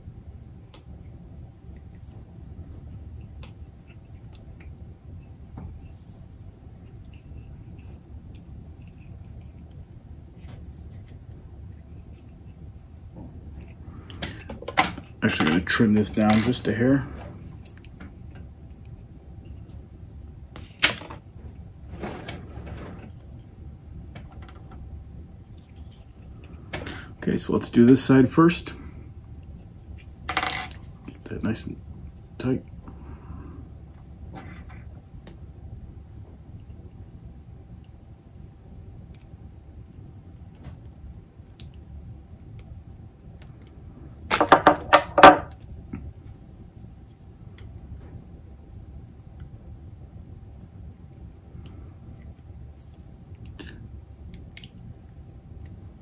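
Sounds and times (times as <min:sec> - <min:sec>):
low steady hum: 0:00.0 - 0:56.0.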